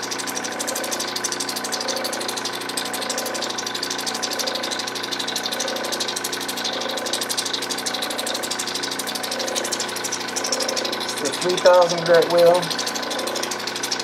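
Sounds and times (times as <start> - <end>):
grinding machine motor humming: 0.0 - 14.0.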